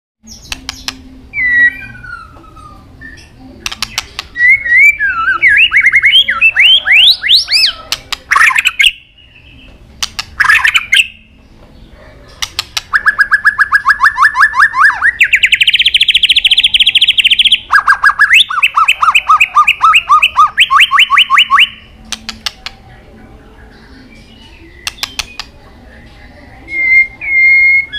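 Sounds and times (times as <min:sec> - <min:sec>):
bird singing whistled phrases: 0:00.2 - 0:03.4, 0:04.3 - 0:09.7, 0:12.9 - 0:21.9, 0:26.6 - 0:27.9
bird sharp clicks: 0:00.4 - 0:01.0, 0:03.6 - 0:04.4, 0:10.0 - 0:11.0, 0:12.3 - 0:13.3, 0:22.0 - 0:22.8, 0:24.8 - 0:25.6
bird fast trills: 0:10.4 - 0:11.3.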